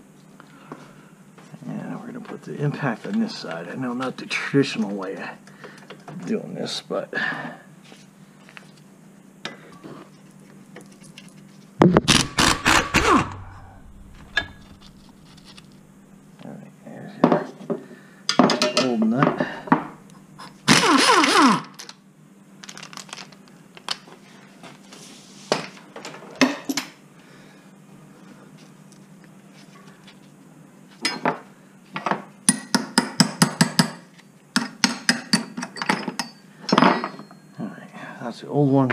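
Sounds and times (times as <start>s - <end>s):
air impact wrench hammering: 11.9s - 14.8s, 20.7s - 21.7s
metal tool clinks and knocks: 35.6s - 37.5s.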